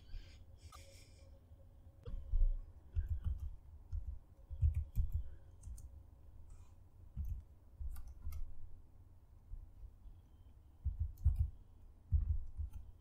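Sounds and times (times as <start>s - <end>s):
keyboard typing: 2.9s - 6.0s, 7.1s - 8.6s, 10.8s - 13.0s.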